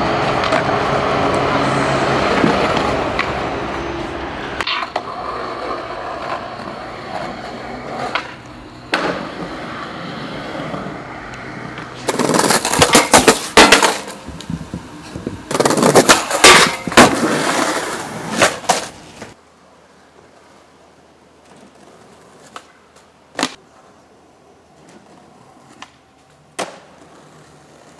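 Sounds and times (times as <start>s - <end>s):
skateboard wheels rolling on pavement: 0.0s - 27.9s
skateboard pops: 4.6s - 5.1s, 8.0s - 9.4s, 11.2s - 19.4s, 21.4s - 23.7s, 24.7s - 27.9s
skateboard clattering and slapping: 4.6s - 9.6s, 11.3s - 19.4s, 24.7s - 27.9s.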